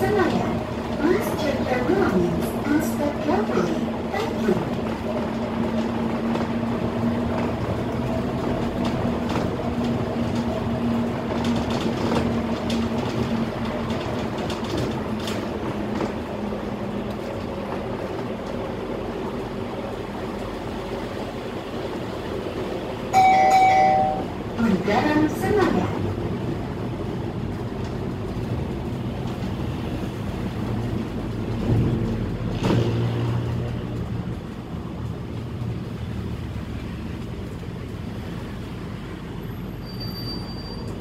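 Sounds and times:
bus engine hum: 0:00.0 - 0:41.0
road noise: 0:00.0 - 0:41.0
short electronic chime: 0:23.2 - 0:24.3.

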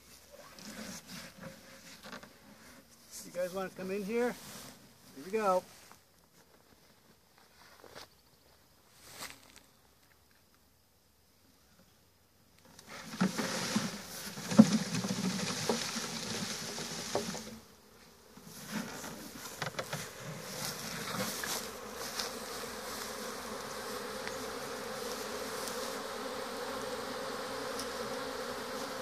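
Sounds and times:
knocks and rustling: 0:13.0 - 0:17.6, 0:18.6 - 0:21.7
bees buzzing: 0:13.3 - 0:29.0.

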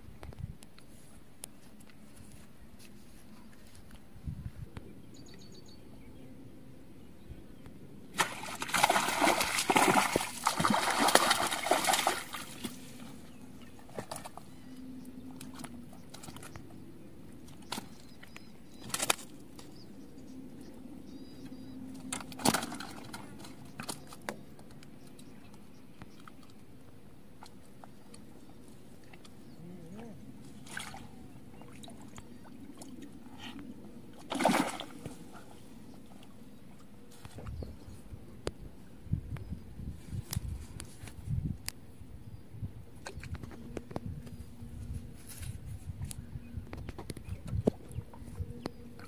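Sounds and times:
fish knocking and slapping: 0:08.2 - 0:12.8
fish thrashing and splashing: 0:08.2 - 0:13.0, 0:22.1 - 0:24.2, 0:34.2 - 0:35.3.

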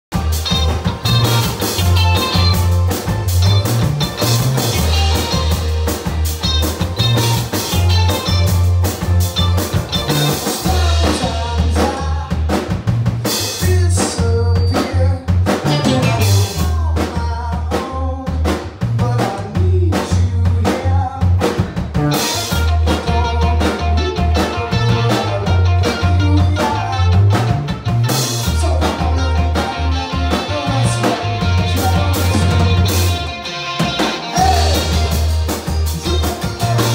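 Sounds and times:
live rock band playing: 0:00.1 - 0:36.9
man singing: 0:10.3 - 0:27.6, 0:28.4 - 0:33.2, 0:34.2 - 0:36.9.

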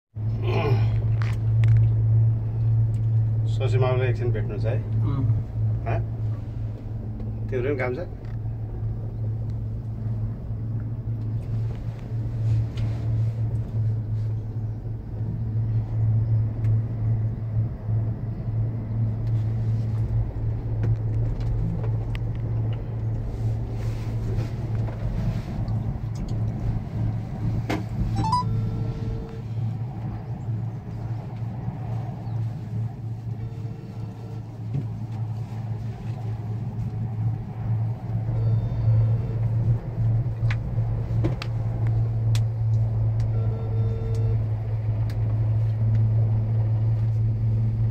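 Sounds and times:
cable car gondola hum and rumble: 0:00.2 - 0:47.9
brief rising chirp: 0:28.2 - 0:29.2.

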